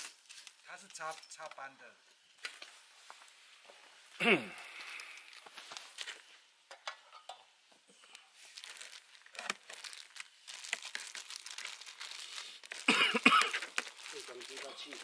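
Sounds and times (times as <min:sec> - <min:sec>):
plastic wrapping crinkling: 0:04.6 - 0:06.3, 0:08.0 - 0:15.0.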